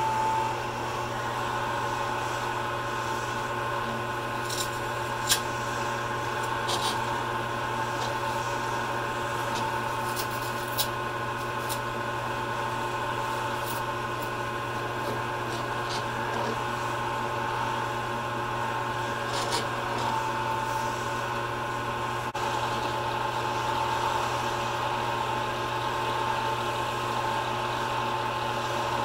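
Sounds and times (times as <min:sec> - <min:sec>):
lathe motor hum: 0:00.0 - 0:29.0
scraping rasp of cutting: 0:06.4 - 0:07.1, 0:09.4 - 0:10.9, 0:19.2 - 0:20.2.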